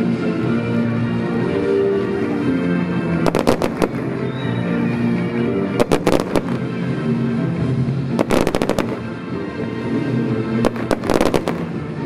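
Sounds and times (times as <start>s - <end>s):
music: 0.0s - 12.0s
fireworks bangs: 3.3s - 4.6s, 5.8s - 6.8s, 8.2s - 9.2s, 10.6s - 12.0s.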